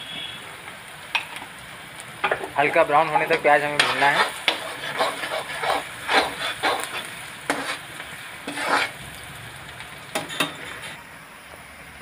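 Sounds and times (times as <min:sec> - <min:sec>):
onions sizzling in oil: 0:00.0 - 0:12.0
spatula scraping a pan: 0:03.1 - 0:09.0, 0:10.2 - 0:11.0.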